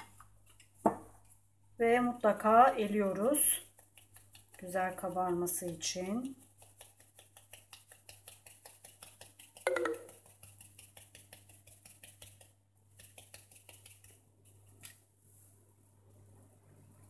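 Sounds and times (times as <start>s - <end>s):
sieve tapping and rattling: 9.6s - 10.3s.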